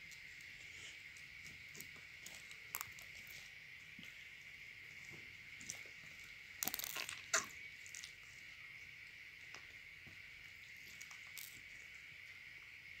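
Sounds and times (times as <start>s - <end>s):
faint high hiss: 0.0s - 13.0s
slime popping: 6.6s - 8.1s
slime squished by hand: 6.6s - 8.2s.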